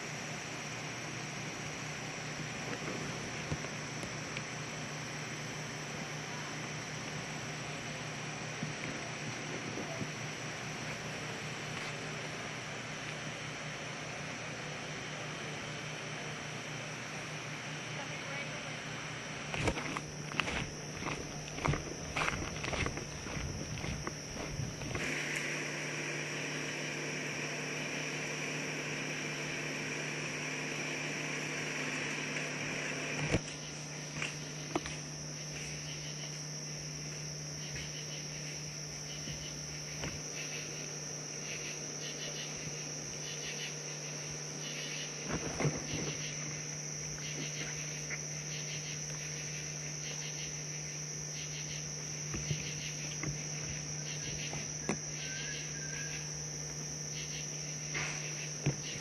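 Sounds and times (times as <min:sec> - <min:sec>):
constant low hum: 0:00.0 - 0:59.0
crickets chirping: 0:00.0 - 0:59.0.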